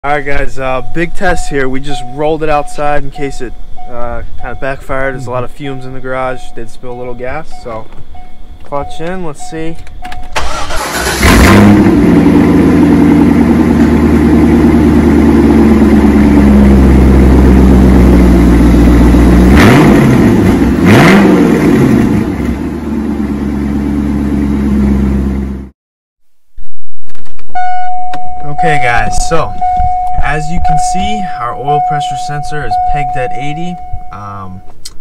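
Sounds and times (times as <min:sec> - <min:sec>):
car engine idling and revving: 0:00.2 - 0:25.7.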